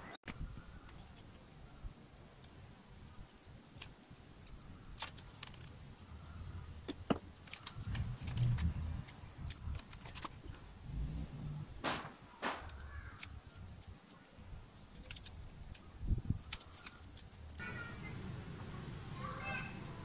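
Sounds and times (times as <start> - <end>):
faint low rumble: 10.6 - 11.9
plastic crate clicking and rattling: 14.9 - 17.6.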